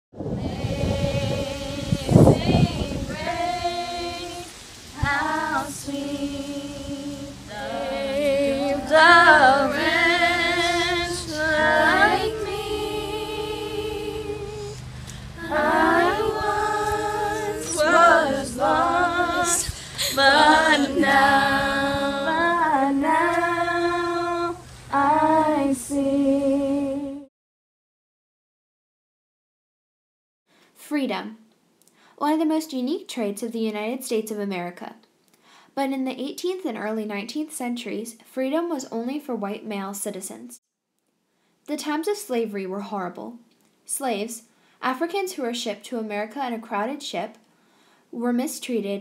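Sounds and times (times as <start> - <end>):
woman singing slow melody: 0.4 - 27.3.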